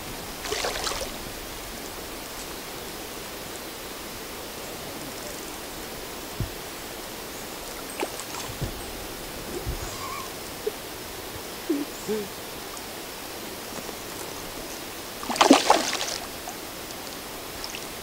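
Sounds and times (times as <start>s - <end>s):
stream flowing: 0.0s - 18.0s
fish thrashing at water surface: 0.4s - 1.2s, 15.2s - 16.4s
loud splash: 0.4s - 1.2s, 15.2s - 16.4s
short hooting calls: 9.8s - 10.8s.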